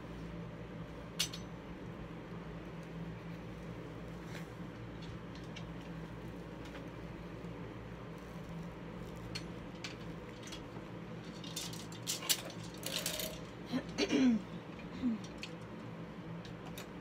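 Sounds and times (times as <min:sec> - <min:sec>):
rustling and light clicks: 0:02.6 - 0:13.6.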